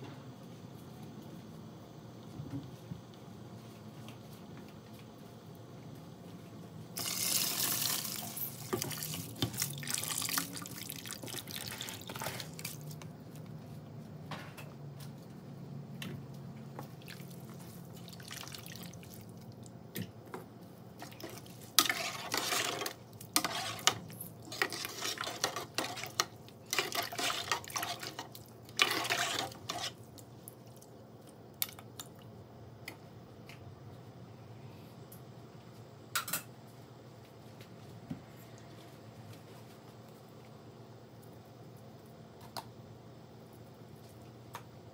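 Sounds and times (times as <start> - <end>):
rice pouring into broth: 7.0 - 12.7
ladle stirring broth: 7.0 - 13.5, 21.0 - 32.1.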